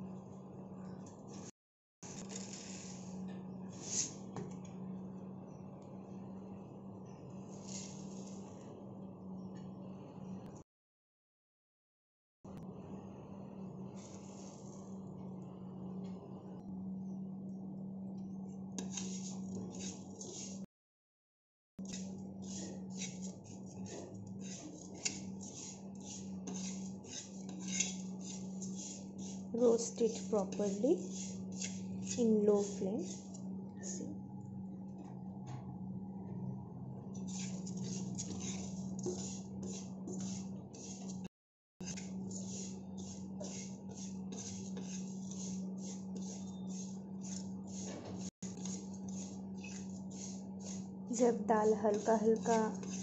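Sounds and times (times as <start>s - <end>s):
spoon scraping lentils in a pan: 1.3s - 4.3s, 7.3s - 8.7s, 13.9s - 14.9s, 18.8s - 20.7s, 21.8s - 34.0s, 37.2s - 53.0s
steady low hum: 12.5s - 20.7s, 21.8s - 53.0s.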